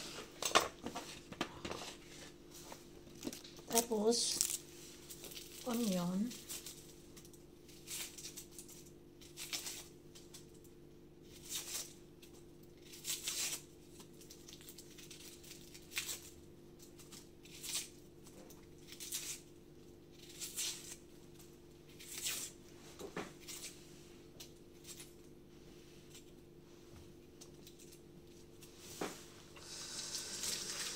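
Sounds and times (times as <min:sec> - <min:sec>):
vegetable skin tearing: 0:04.4 - 0:22.7, 0:23.3 - 0:25.3.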